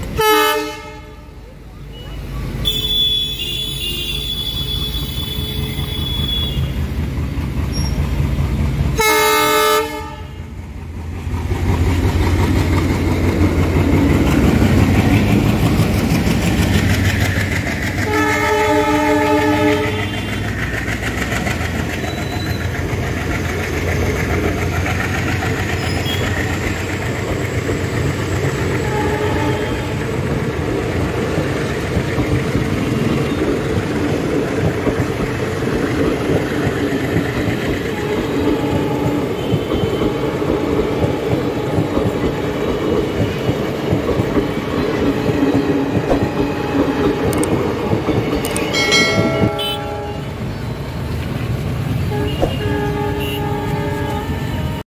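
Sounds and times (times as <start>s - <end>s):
train coaches rumbling and clattering: 0.0s - 54.8s
locomotive horn: 0.2s - 1.5s, 2.1s - 6.8s, 9.0s - 10.6s, 18.0s - 20.6s, 28.7s - 30.2s, 37.8s - 43.4s, 44.2s - 50.5s, 51.9s - 54.8s.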